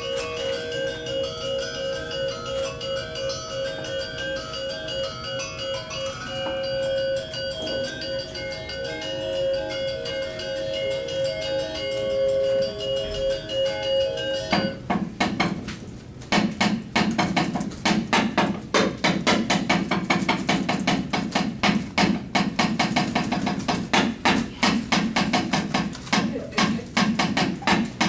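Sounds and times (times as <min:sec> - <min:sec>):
ringing metallophone notes: 0:00.0 - 0:14.9
rapid wooden knocking: 0:16.3 - 0:28.0.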